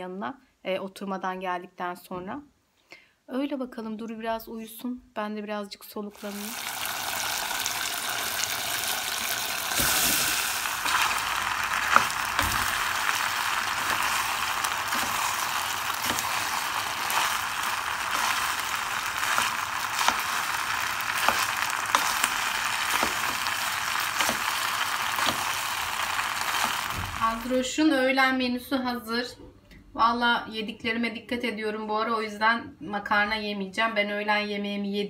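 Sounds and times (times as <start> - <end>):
sauce sizzling in a pot: 6.1 - 27.7
spoon clicking and scraping pan: 10.8 - 26.8.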